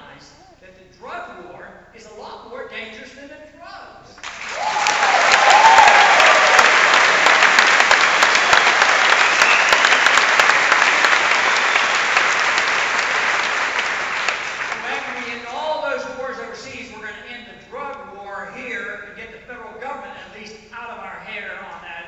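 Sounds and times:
large audience applauding: 0:04.2 - 0:15.6
person cheering: 0:04.5 - 0:11.9.

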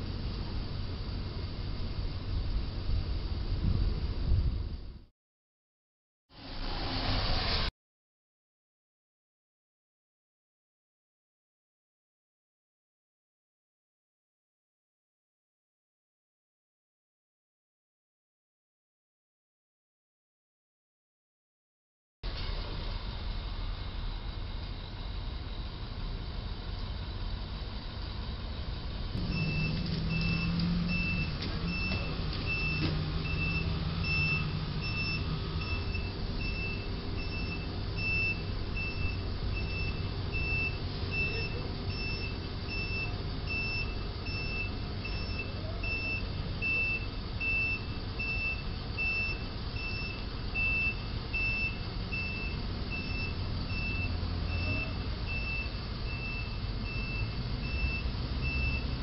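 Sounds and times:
truck engine humming: 0:00.0 - 0:05.0, 0:22.3 - 0:59.0
truck backup alarm beeping: 0:29.2 - 0:59.0.

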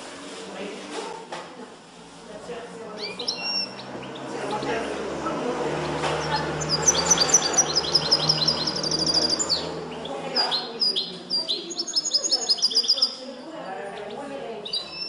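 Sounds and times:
goldfinch singing trills: 0:02.9 - 0:13.2, 0:13.9 - 0:15.0.

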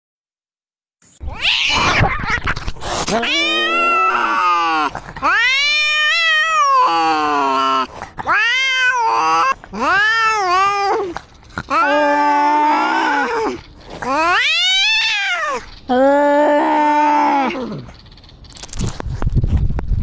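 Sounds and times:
cat yowling: 0:01.2 - 0:02.5, 0:03.1 - 0:15.7.

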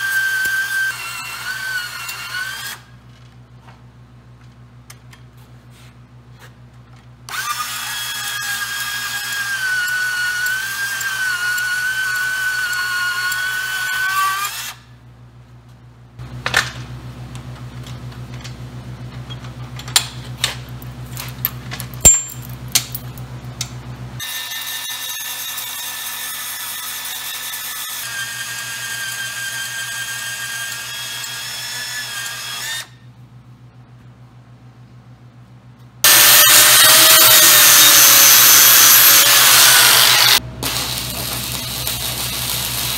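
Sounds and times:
band saw cutting steel: 0:00.0 - 0:02.9, 0:07.3 - 0:14.8, 0:24.2 - 0:32.9, 0:36.0 - 0:42.9.

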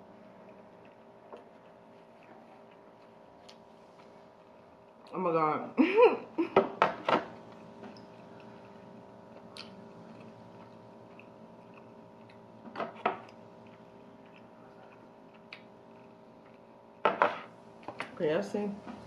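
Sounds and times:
chewing toasted bread: 0:00.0 - 0:05.2, 0:07.4 - 0:17.0
steady low hum: 0:00.0 - 0:19.0.

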